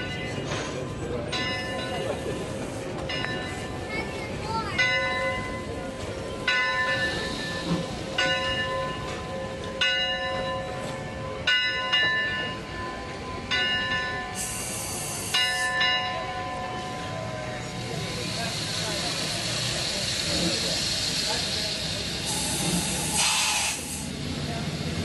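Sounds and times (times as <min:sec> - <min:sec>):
locomotive bell ringing: 0:00.0 - 0:21.8
steam hiss: 0:14.4 - 0:15.7, 0:17.9 - 0:24.2.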